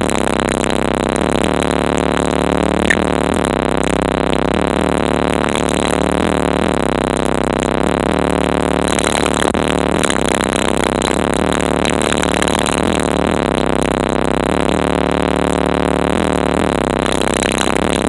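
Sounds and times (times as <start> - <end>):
bass-heavy music on car stereo: 0.0 - 18.0.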